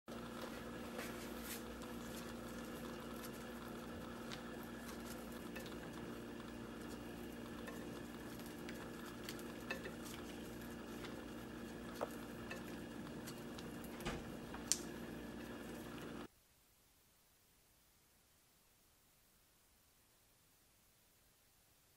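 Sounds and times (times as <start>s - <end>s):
steady low hum: 0.1s - 16.3s.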